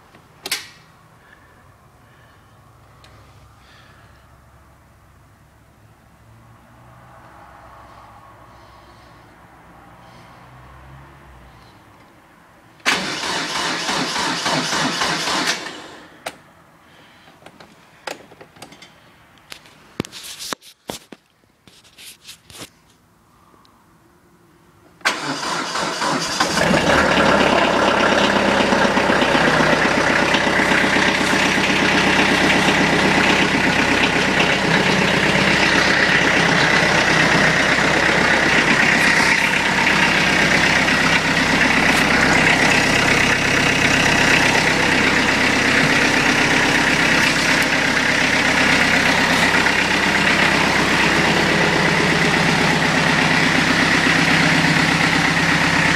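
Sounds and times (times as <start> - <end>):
diesel engine idling: 0.0 - 5.7, 7.9 - 10.8, 12.8 - 16.2, 25.0 - 55.9
diesel engine cranking: 12.8 - 16.3, 25.0 - 55.9.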